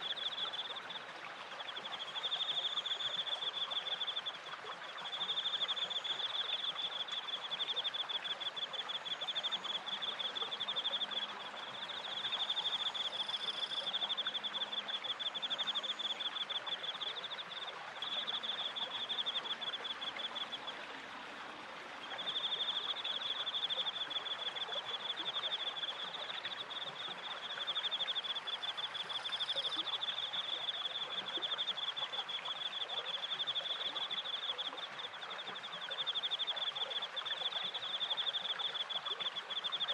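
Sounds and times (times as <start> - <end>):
crickets trilling: 5.1 - 20.5.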